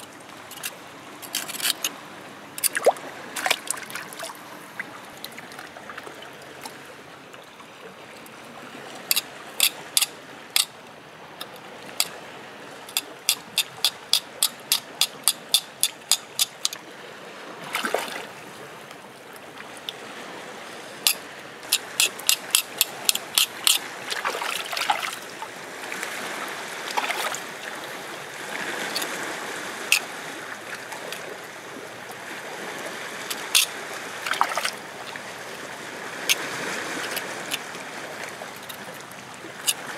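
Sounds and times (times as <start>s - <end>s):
water trickling and lapping: 0.0s - 39.9s
knife clicking against rock: 0.5s - 1.9s, 2.6s - 3.8s, 9.1s - 10.8s, 11.4s - 12.2s, 12.9s - 16.8s, 21.1s - 23.9s, 28.9s - 29.2s, 33.3s - 33.7s, 37.0s - 37.6s, 39.6s - 39.9s.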